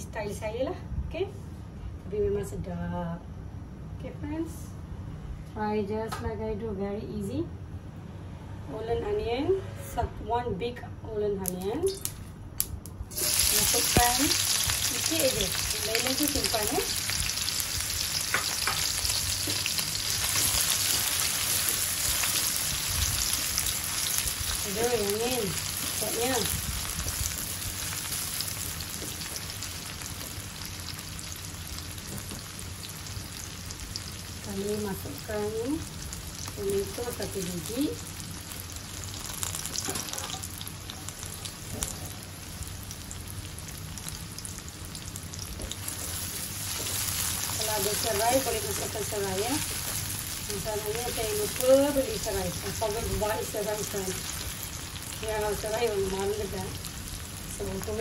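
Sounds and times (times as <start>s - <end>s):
onions sizzling in hot oil: 13.1s - 58.0s.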